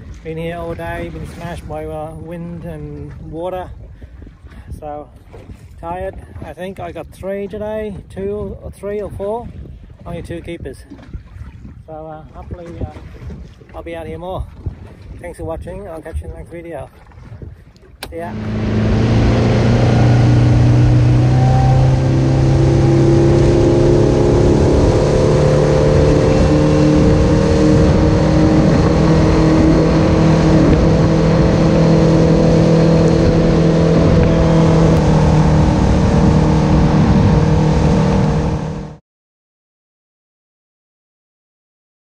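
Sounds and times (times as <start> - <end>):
boat engine running: 0.0 - 6.2, 17.0 - 39.0.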